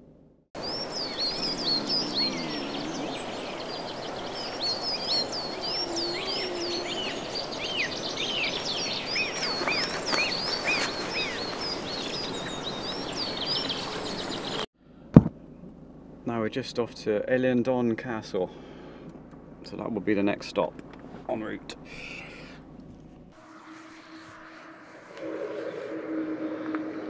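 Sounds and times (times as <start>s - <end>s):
small songbirds chirping: 0.6s - 14.7s.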